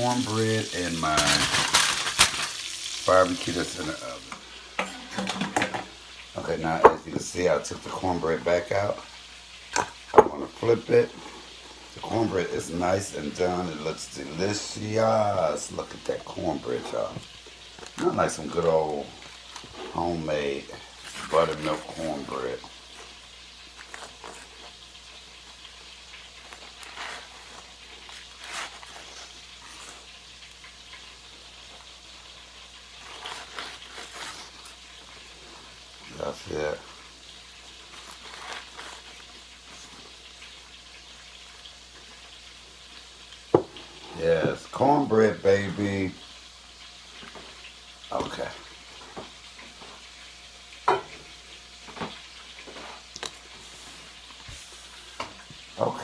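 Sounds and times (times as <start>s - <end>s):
ribs sizzling in a pan: 0.0s - 56.0s
kitchenware knocking: 4.8s - 5.9s
paper towel rustling: 19.7s - 23.1s.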